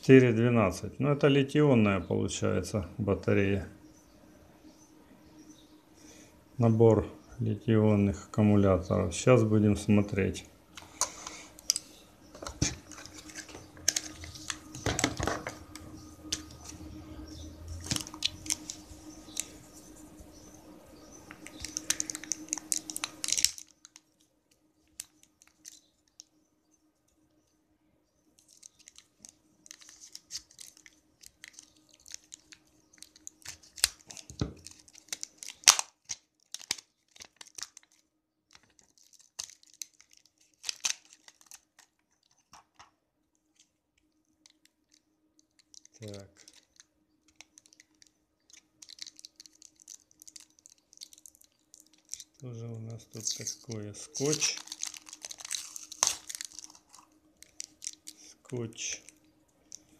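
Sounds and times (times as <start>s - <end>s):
faint steady hum: 0.0s - 59.9s
plastic wrap crinkling and tearing: 10.8s - 20.1s, 21.3s - 26.4s, 28.4s - 52.4s, 53.1s - 59.9s.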